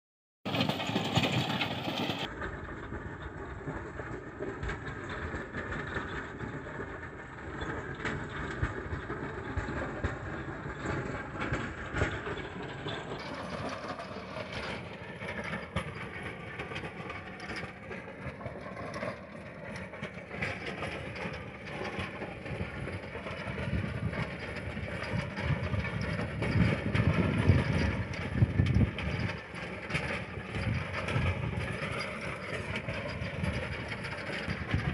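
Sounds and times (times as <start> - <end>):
tractor engine under load: 0.4 - 34.9
rotavator churning soil: 0.5 - 2.3.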